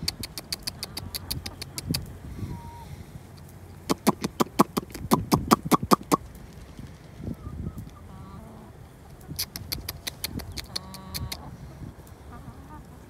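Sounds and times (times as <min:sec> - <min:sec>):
person clicking to call chickens: 0:00.0 - 0:02.2, 0:03.4 - 0:06.7, 0:09.1 - 0:11.5
soft hen calls: 0:00.1 - 0:03.0, 0:07.3 - 0:13.0.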